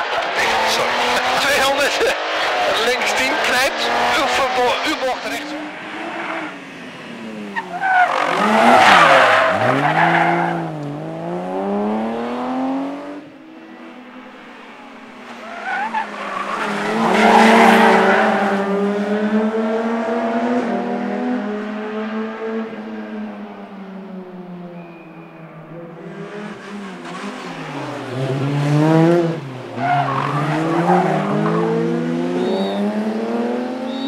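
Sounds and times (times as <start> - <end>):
rally car engine revving: 0.0 - 23.4, 24.9 - 34.0
tyres squealing: 7.6 - 10.6, 15.3 - 18.3.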